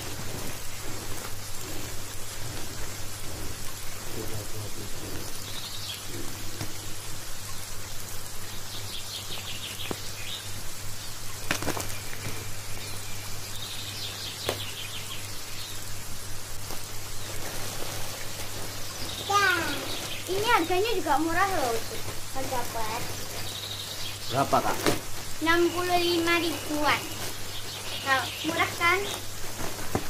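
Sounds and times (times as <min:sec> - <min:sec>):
plastic packaging rustling: 0:11.4 - 0:12.4, 0:16.7 - 0:23.5, 0:24.3 - 0:30.0.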